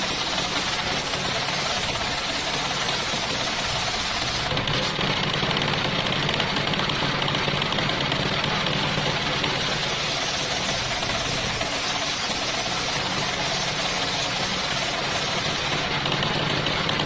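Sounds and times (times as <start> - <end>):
circular saw cutting wood: 0.0 - 5.0, 8.6 - 17.0
engine chugging: 0.0 - 17.0.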